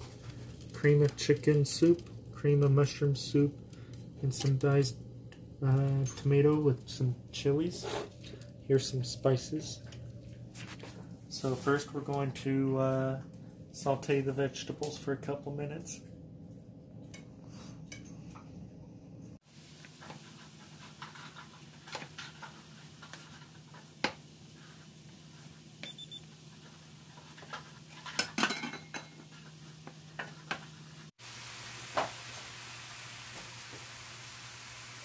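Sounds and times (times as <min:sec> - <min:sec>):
light sizzle: 0:00.0 - 0:15.3, 0:19.3 - 0:35.0
steady low hum: 0:00.0 - 0:19.4
steady hiss: 0:30.2 - 0:35.0.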